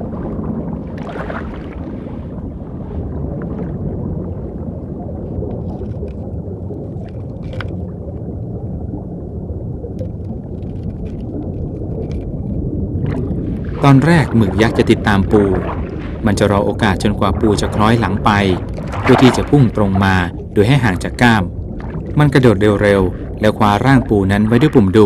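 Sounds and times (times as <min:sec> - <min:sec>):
underwater rumble: 0:00.0 - 0:25.0
faint clicks: 0:05.5 - 0:06.3, 0:07.0 - 0:07.8, 0:09.9 - 0:12.6.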